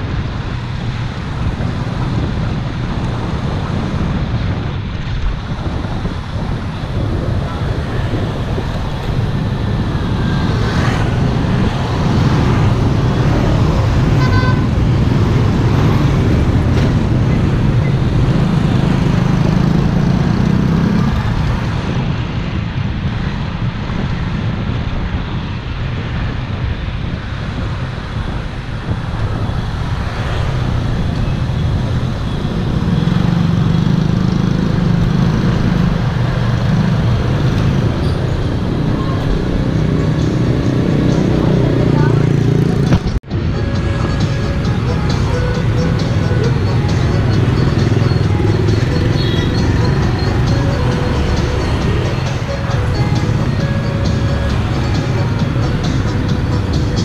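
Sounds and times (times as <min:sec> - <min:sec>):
road traffic rumble: 0:00.0 - 0:57.0
pulsed horn beep: 0:43.7 - 0:56.6.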